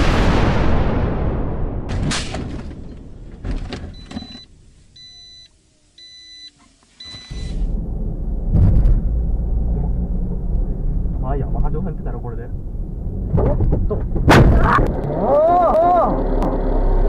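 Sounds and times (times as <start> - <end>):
car engine and road noise: 2.9 - 17.0
car warning chime beeps: 3.9 - 7.6
knocks: 13.3 - 14.6.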